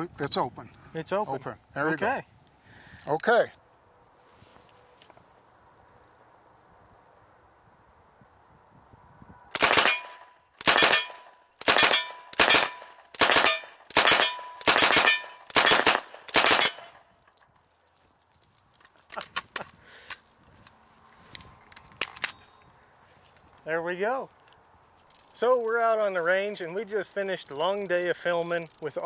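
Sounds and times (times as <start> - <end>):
submachine gun firing bursts: 9.6 - 16.9.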